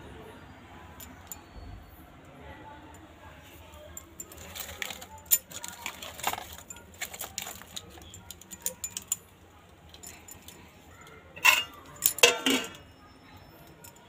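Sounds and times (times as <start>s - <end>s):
metal plate clinking on pot: 11.4s - 12.9s.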